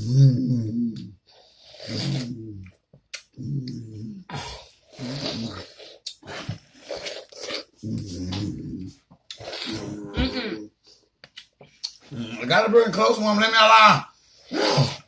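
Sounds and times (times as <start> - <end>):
wet slurping and chomping: 4.9 - 8.3.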